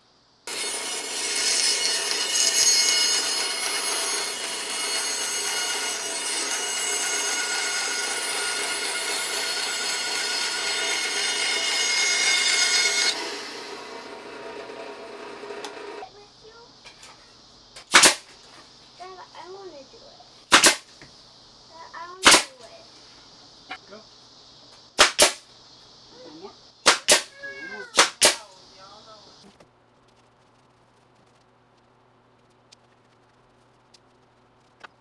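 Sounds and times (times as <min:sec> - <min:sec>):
bandsaw cutting wood: 0:00.5 - 0:16.0.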